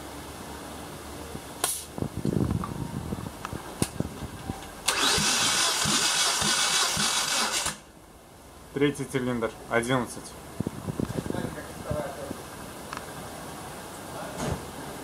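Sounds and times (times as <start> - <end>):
engine cranking: 4.8 - 7.9.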